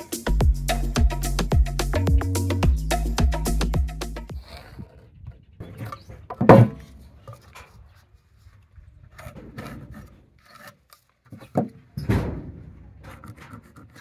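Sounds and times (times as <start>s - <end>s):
metal rule scraping on wood: 9.1s - 11.7s, 13.0s - 14.0s.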